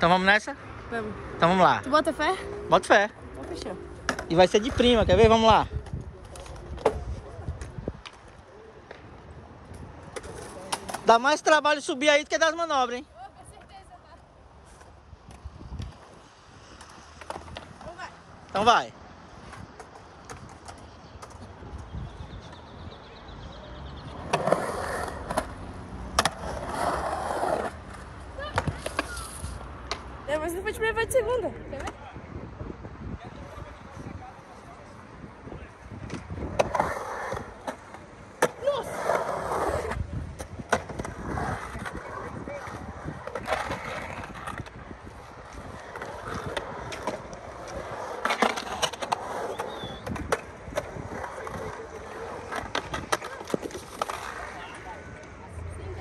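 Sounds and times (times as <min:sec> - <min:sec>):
skateboard rolling on concrete: 0:00.0 - 0:56.0
skateboard clacks: 0:36.0 - 0:55.4.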